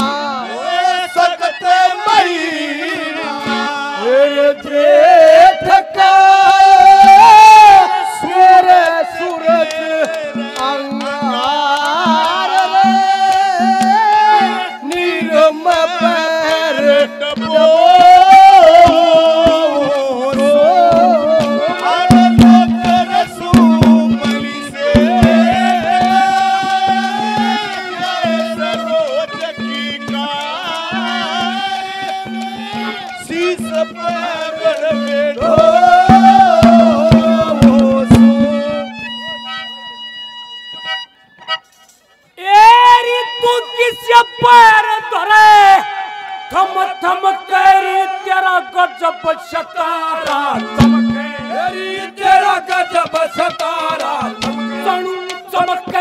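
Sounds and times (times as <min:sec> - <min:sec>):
hand-drum beats: 0:05.6 - 0:39.9, 0:50.2 - 0:56.0.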